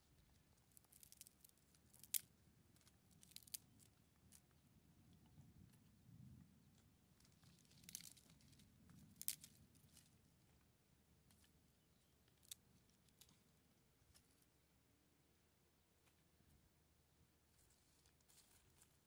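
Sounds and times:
dry twigs crackling and snapping: 0.7s - 4.4s, 7.3s - 10.1s.

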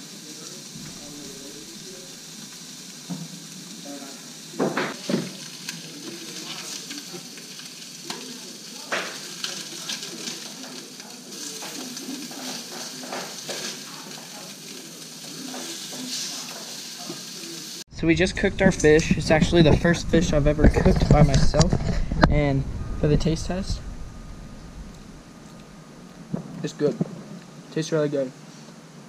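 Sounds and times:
fish sizzling in butter: 0.0s - 17.9s.

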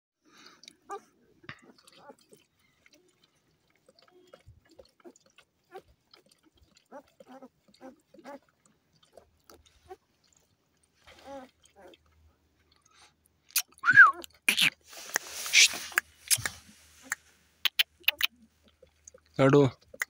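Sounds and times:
puppies suckling and licking: 0.3s - 20.0s
puppy squeaks: 17.7s - 18.3s.

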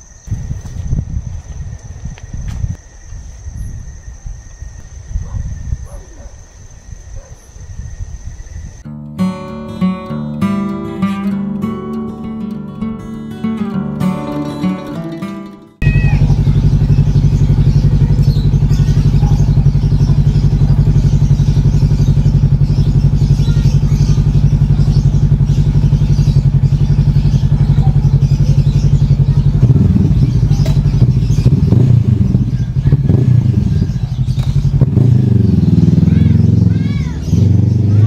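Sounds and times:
engine knocks and clatter: 15.8s - 38.0s
motorcycle engine idling: 15.8s - 38.0s.

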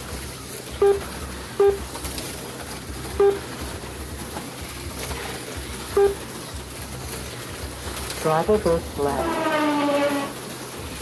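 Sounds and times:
slot cars whirring: 0.0s - 11.0s
short electronic beeps: 0.8s - 1.8s, 3.2s - 3.5s, 6.0s - 6.2s.

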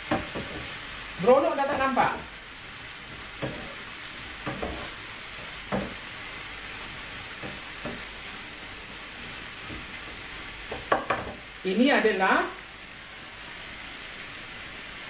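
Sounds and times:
food sizzling in a wok: 0.0s - 15.0s
utensil scraping a pan: 4.4s - 5.1s.

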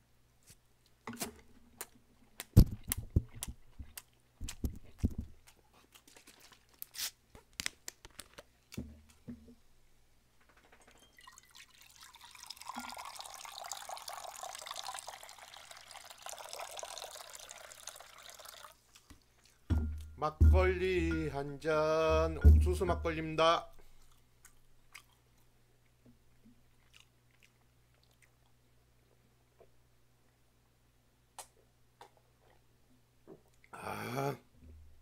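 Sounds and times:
wet chewing: 1.8s - 7.2s, 23.9s - 25.5s, 26.4s - 28.6s
liquid pouring into metal bowl: 11.2s - 18.8s.

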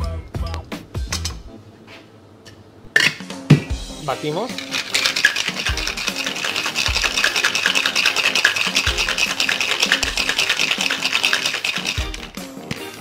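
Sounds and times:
ice rattling in cocktail shaker: 4.1s - 13.0s.

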